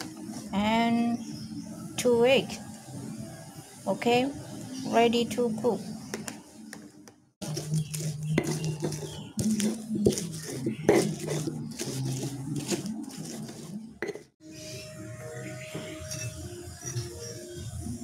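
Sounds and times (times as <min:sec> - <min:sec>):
stone pestle scraping on mortar: 0:07.4 - 0:14.4, 0:15.7 - 0:17.4
stone knocking on stone: 0:13.5 - 0:14.3.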